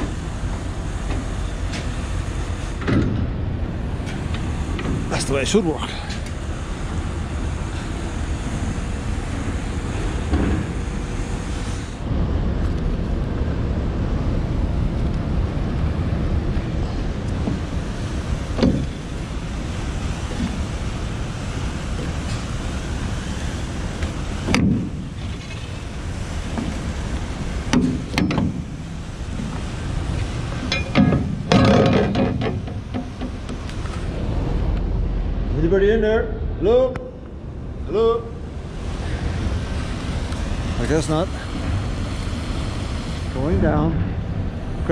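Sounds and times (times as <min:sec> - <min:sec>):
sharp metal clanks: 0:30.7 - 0:32.6.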